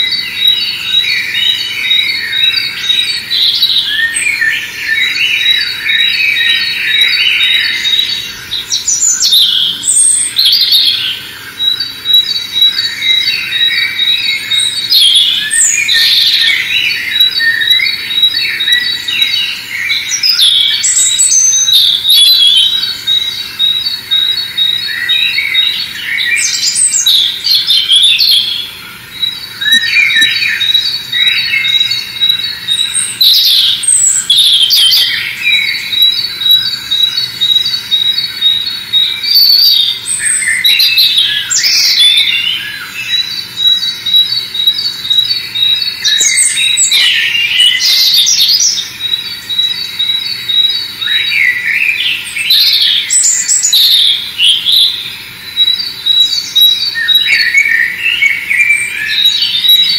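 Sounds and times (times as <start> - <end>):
songbirds singing: 0.0 - 59.9.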